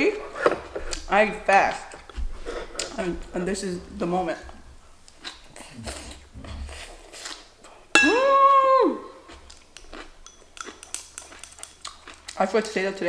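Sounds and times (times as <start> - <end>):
soft chewing: 1.7 - 3.6, 4.3 - 7.9, 9.1 - 13.0.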